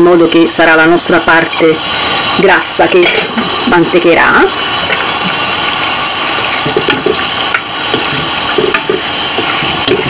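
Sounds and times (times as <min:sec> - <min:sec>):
pasta sauce bubbling and sizzling: 0:00.9 - 0:10.0
wooden spoon stirring: 0:04.8 - 0:10.0.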